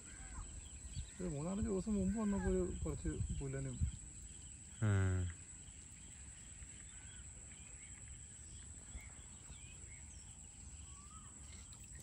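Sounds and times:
bird chirps: 0.0s - 12.0s
low steady background noise: 0.0s - 12.0s.

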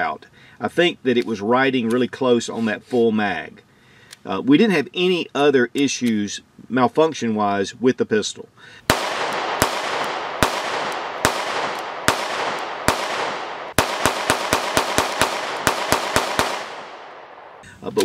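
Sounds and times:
pistol shots echoing: 8.9s - 17.6s.

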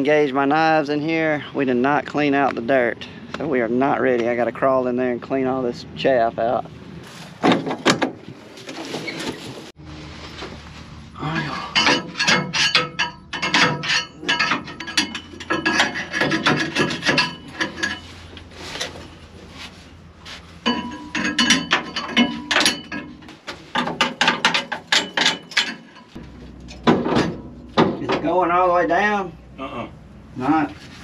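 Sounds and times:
knocking scraping and rattling: 7.3s - 9.8s, 10.4s - 28.6s
low steady hum: 9.6s - 31.0s.

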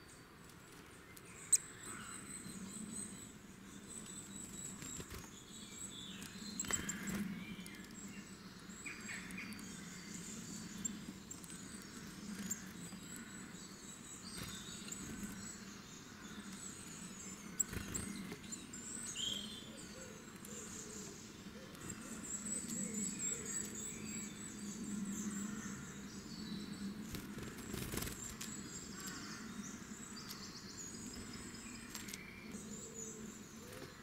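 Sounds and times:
low steady background noise: 0.0s - 34.0s.

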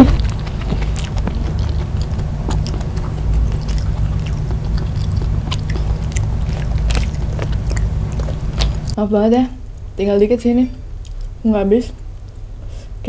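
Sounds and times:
close chewing: 0.0s - 9.0s
steady low hum: 0.0s - 13.0s
wet mouth clicks: 0.3s - 9.0s.

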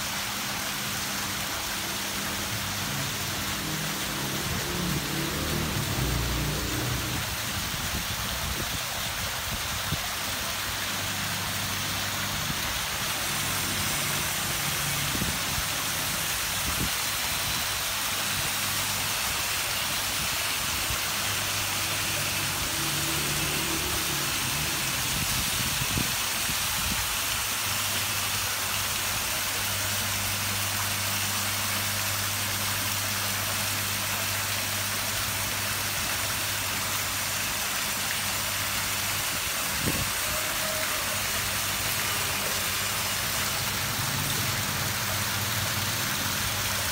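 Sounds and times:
waterfall splashing into pond: 0.0s - 46.9s.

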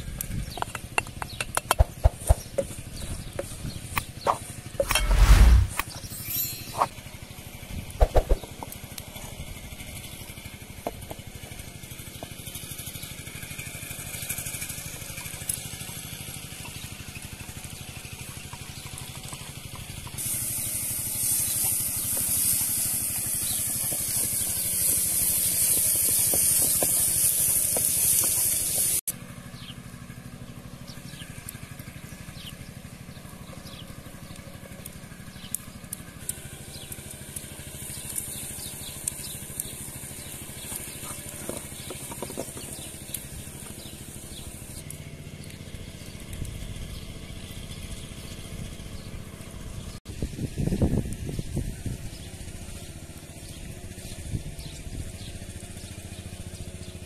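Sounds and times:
filling sizzling in a pan: 13.9s - 29.0s, 36.2s - 44.8s.

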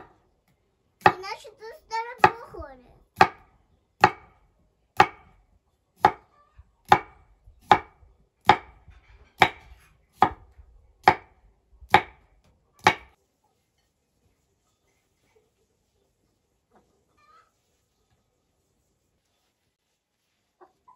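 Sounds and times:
knife chopping on wooden board: 2.2s - 2.4s, 3.2s - 4.3s, 5.0s - 5.4s, 6.0s - 6.2s, 6.9s - 8.8s, 9.4s - 12.2s, 12.8s - 13.2s.

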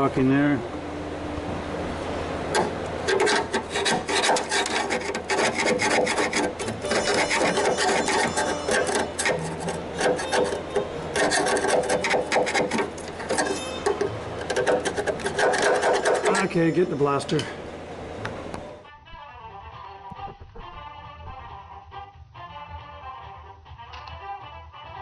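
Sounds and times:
hand scraper scraping metal: 2.5s - 17.4s.

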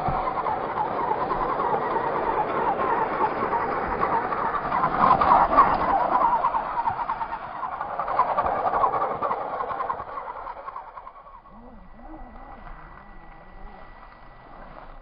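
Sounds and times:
electric motor whining: 10.2s - 15.0s.

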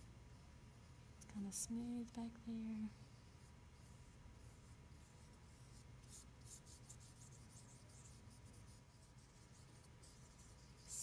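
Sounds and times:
brush scratching on paper: 2.9s - 11.0s.

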